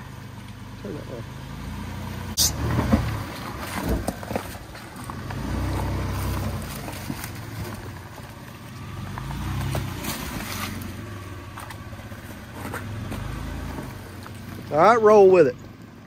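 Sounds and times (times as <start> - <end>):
engine pulling under load: 0.0 - 16.0
tyres crunching over rock and leaves: 2.7 - 15.0.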